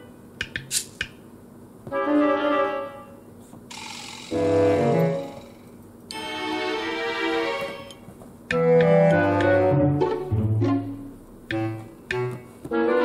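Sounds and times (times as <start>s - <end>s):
background music: 1.9s - 3.2s, 4.3s - 13.0s.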